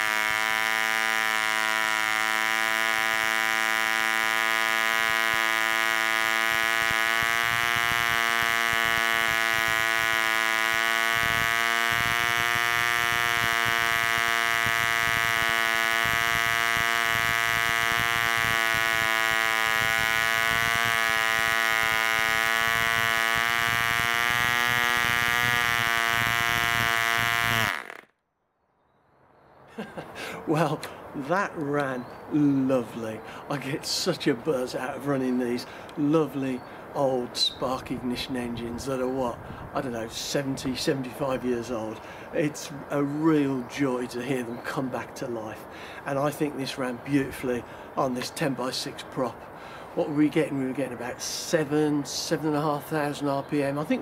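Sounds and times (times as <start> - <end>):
model engine buzzing: 0.0 - 28.1.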